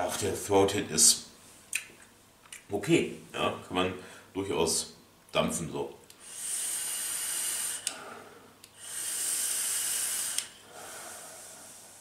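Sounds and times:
e-cigarette drag hiss: 6.2 - 12.0
person breathing out: 6.2 - 12.0.

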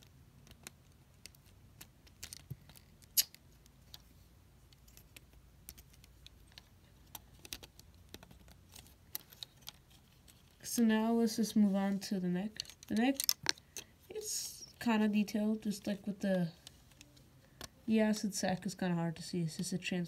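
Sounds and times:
faint steady hum: 0.0 - 20.0
plastic pieces clicking: 0.4 - 4.1, 4.7 - 10.6, 12.6 - 13.9.

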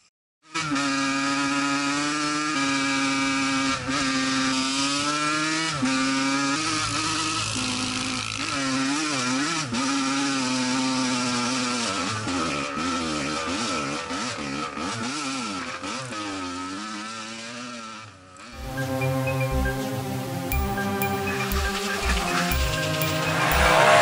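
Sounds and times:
two-stroke engine revving: 0.4 - 24.0.

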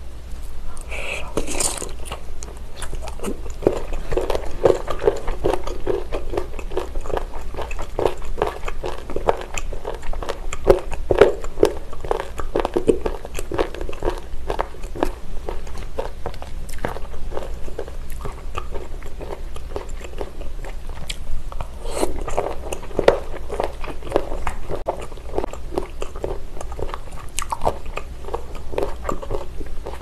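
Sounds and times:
moist chewing clicks: 1.4 - 30.0.

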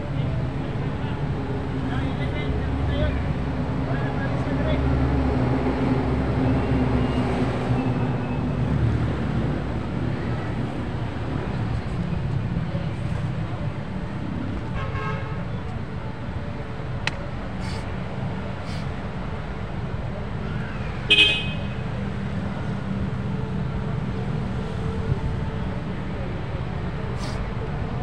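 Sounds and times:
car horn toot: 21.1 - 21.8.

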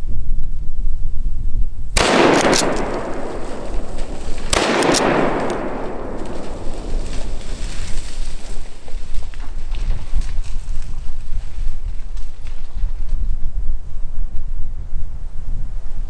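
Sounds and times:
rifle shots echoing: 2.0 - 8.8
wind buffeting microphone: 2.0 - 16.0.

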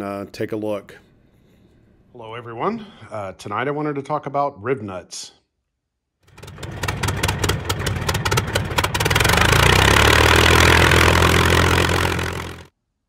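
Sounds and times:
engine starting and running: 6.2 - 12.7.

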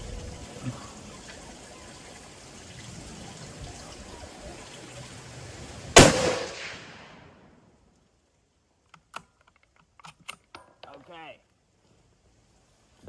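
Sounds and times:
faint background hiss: 0.0 - 13.0
rifle shot with echo: 6.0 - 7.4.

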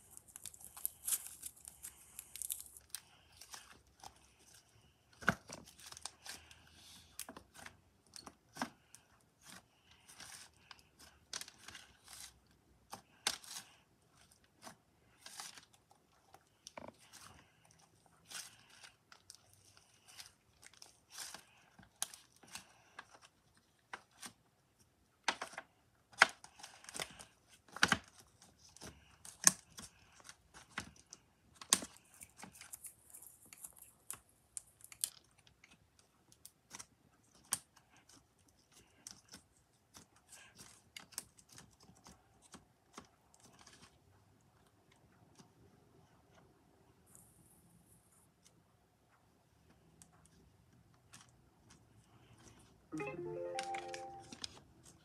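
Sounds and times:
slime crackling and popping: 0.0 - 3.8.

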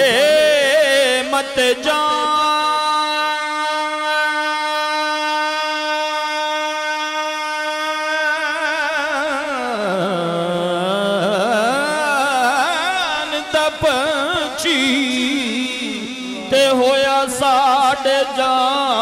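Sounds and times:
man singing: 0.0 - 19.0.

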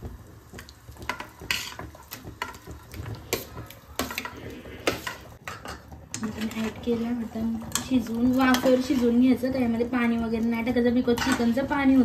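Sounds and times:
metal spatula scraping steel plate: 1.4 - 2.6, 3.3 - 9.4.

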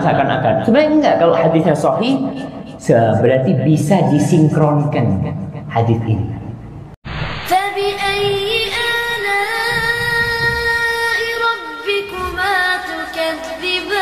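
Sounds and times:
person singing long notes: 7.5 - 11.5.

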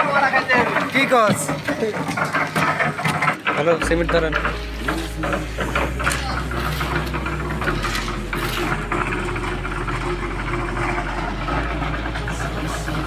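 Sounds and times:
concrete mixer engine running: 0.0 - 13.0.

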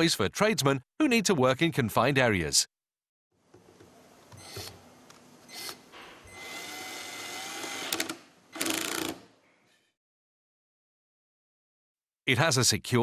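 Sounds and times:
cordless screwdriver driving screw: 5.5 - 9.2.

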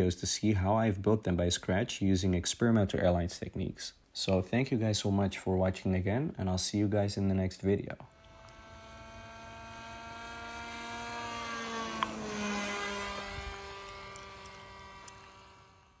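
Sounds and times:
model plane motor whine: 8.1 - 16.0
sharp tick: 14.1 - 15.3.

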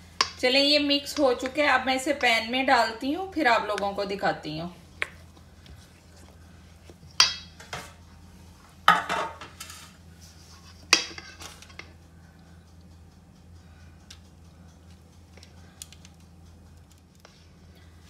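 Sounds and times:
metal bowl clanking: 7.1 - 8.0.

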